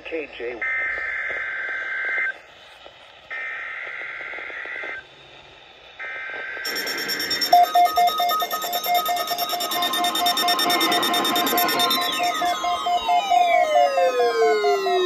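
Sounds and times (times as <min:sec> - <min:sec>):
buzzy data bursts: 0:03.3 - 0:15.0
alert tone beeping rapidly: 0:06.6 - 0:15.0.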